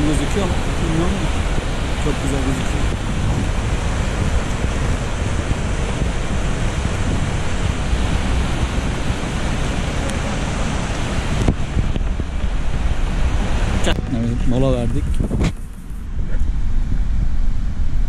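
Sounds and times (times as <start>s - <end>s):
river rushing over rocks: 0.0s - 15.3s
wind rumbling on microphone: 0.0s - 18.0s.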